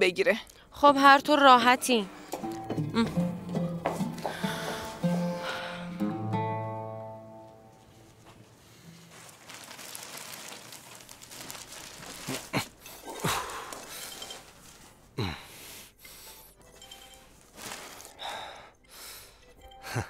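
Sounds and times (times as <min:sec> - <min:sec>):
plastic bag rustling: 0:07.7 - 0:15.2, 0:16.8 - 0:18.6
sharp plastic crackles: 0:08.8 - 0:14.9.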